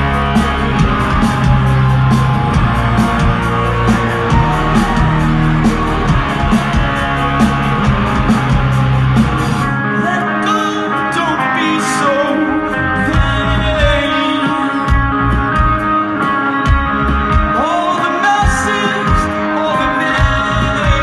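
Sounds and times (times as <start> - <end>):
bass: 0.0 - 21.0
drums: 0.0 - 21.0
guitar: 0.0 - 21.0
person singing: 9.9 - 15.3.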